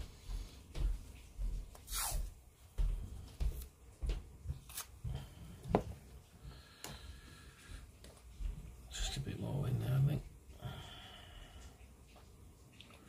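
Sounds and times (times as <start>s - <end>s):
tape scraping or tearing: 1.8s - 2.2s, 4.7s - 4.9s.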